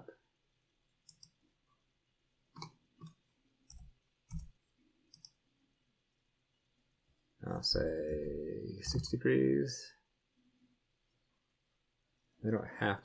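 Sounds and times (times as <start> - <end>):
computer mouse clicks: 1.0 - 1.5, 2.5 - 5.4.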